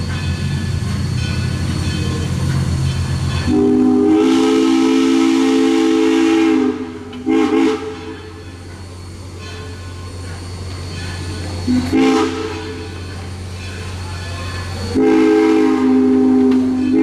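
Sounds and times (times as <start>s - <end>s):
low rumble of moving train: 0.0s - 17.0s
steam locomotive whistle blasts: 3.3s - 8.5s, 11.6s - 13.2s, 14.6s - 17.0s.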